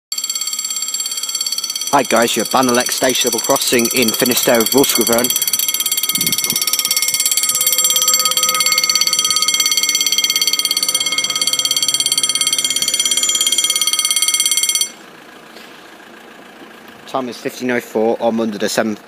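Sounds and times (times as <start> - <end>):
level crossing warning bell: 0.1 - 15.1.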